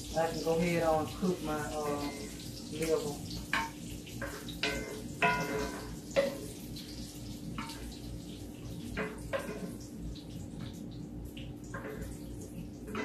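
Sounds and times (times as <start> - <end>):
kitchenware clinking: 1.7 - 6.6.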